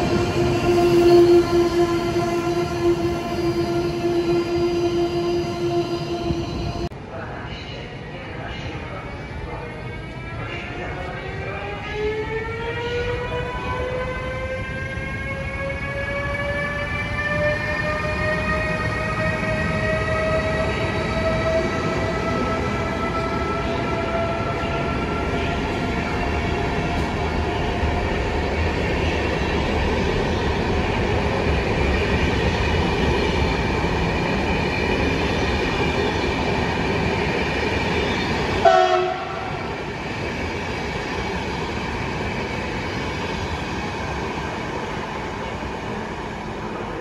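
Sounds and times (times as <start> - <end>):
locomotive whine: 0.0 - 6.9, 37.8 - 40.5
train rolling on rails: 0.0 - 47.0.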